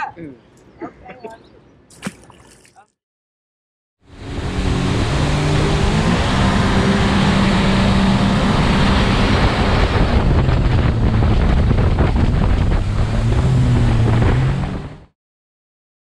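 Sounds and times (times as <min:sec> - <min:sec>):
wind buffeting microphone: 0:08.2 - 0:14.9.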